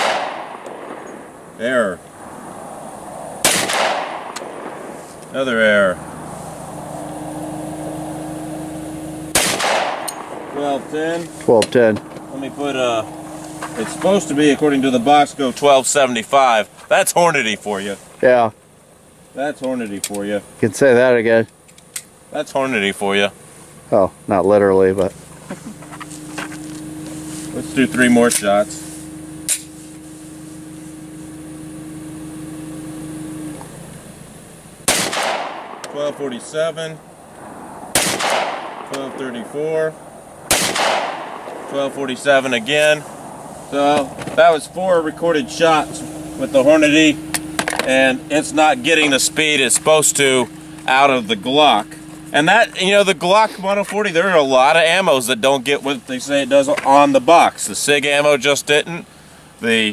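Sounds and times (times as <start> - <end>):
pistol shot with echo: 0.0 - 1.3, 3.4 - 5.0, 9.3 - 10.5, 34.8 - 36.0, 37.9 - 39.2, 40.5 - 41.8
steady low hum: 0.0 - 59.9.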